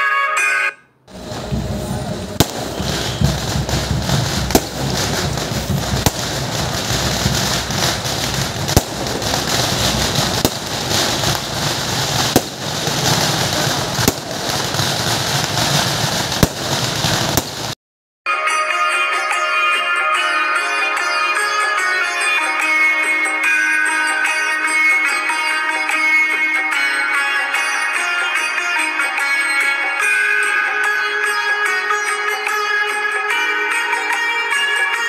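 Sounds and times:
continuous noisy din: 1.1 - 17.8
firework bangs: 1.1 - 17.8.

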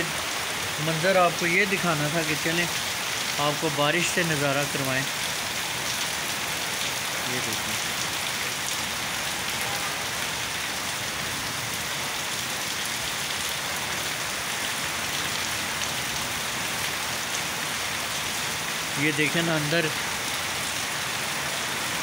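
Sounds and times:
heavy rain on metal roofs: 0.0 - 22.0
water pouring off roof: 0.0 - 22.0.

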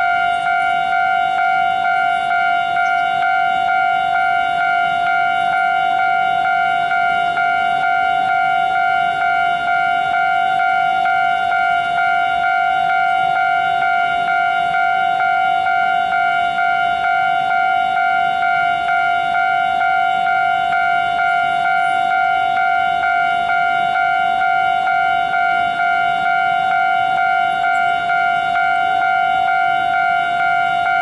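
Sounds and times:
level crossing alarm pulsing: 0.0 - 31.0.

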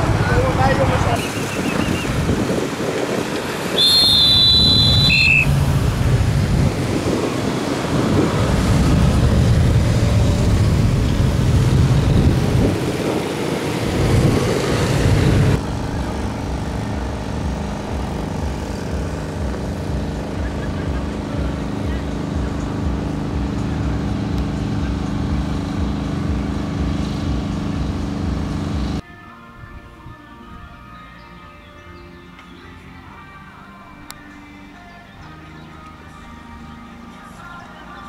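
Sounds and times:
motorcycles passing: 0.0 - 29.0
road traffic passing: 0.0 - 38.0
shrill whistle: 1.2 - 2.1, 3.7 - 5.6.

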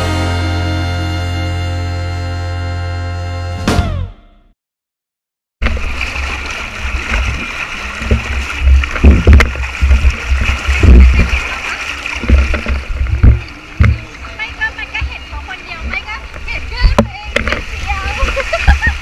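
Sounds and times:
water rushing down slide: 5.6 - 19.0
wind on microphone: 7.1 - 14.2.

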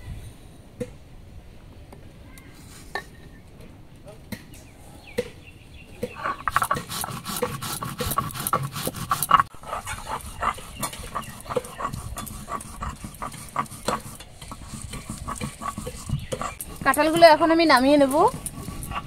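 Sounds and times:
stone grinding rasping scrapes: 6.0 - 19.0.

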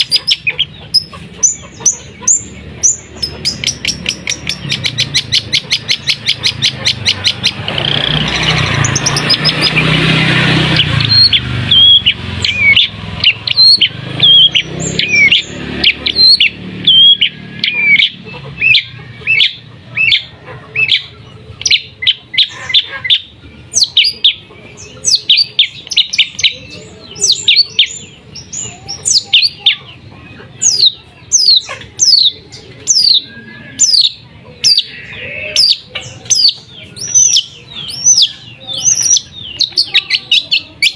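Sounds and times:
shrike singing sharp notes: 0.0 - 21.1
loud rushing noise: 6.1 - 18.0.

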